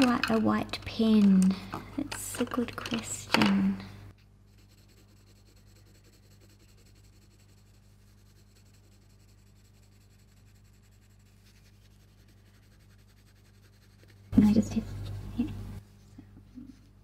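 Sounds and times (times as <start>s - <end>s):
pencil scratching on card: 4.5s - 14.4s.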